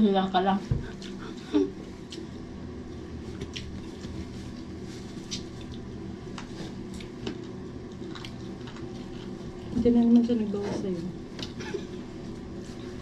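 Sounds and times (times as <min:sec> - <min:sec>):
steady low hum: 0:00.0 - 0:13.0
chewing and mouth sounds: 0:00.9 - 0:05.9, 0:06.8 - 0:09.7.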